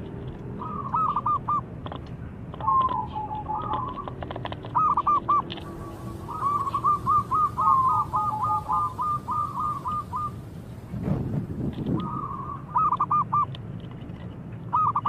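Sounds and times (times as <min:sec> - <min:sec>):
dove cooing and trilling: 0:00.6 - 0:01.7, 0:02.6 - 0:10.6, 0:12.0 - 0:13.5, 0:14.7 - 0:15.0.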